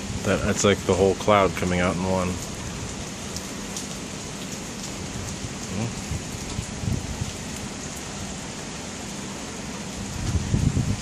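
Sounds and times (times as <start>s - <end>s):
steady rain: 0.0s - 11.0s
low thunder rumbles: 5.1s - 7.5s, 10.0s - 11.0s.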